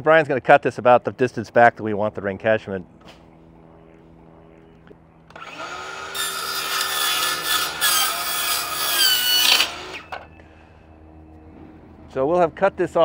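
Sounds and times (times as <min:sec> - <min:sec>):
circular saw cutting foam panel: 0:05.3 - 0:10.3.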